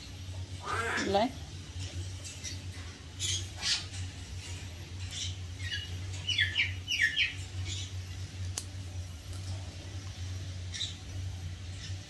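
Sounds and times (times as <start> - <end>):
parrot squeaky chirps: 3.2 - 4.0.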